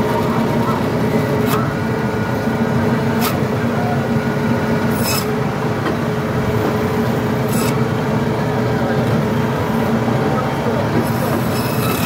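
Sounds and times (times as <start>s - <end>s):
band saw humming: 0.0s - 8.1s.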